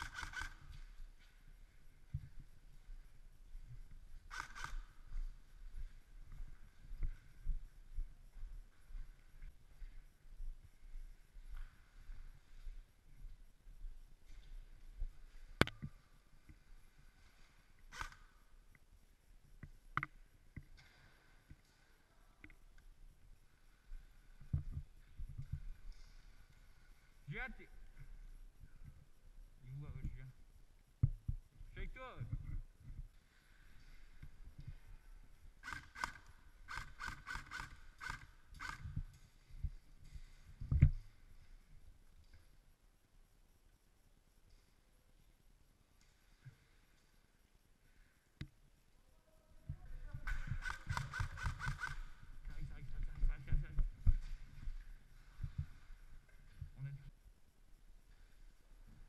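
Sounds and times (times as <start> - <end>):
airsoft rifle shots: 0.0 - 0.6, 50.3 - 52.1
muffled sharp clicks: 35.6 - 39.2, 50.2 - 53.1.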